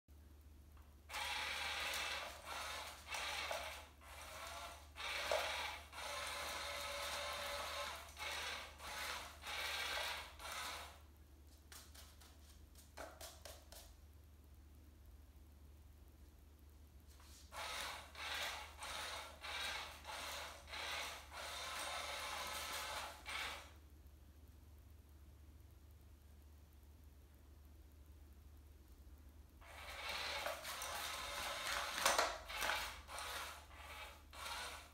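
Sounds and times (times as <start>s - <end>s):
cat toy rasping and rustling: 1.1s - 11.0s, 17.2s - 23.7s, 29.6s - 34.9s
small geared motor whirring: 1.1s - 11.0s, 17.5s - 23.7s, 29.6s - 34.9s.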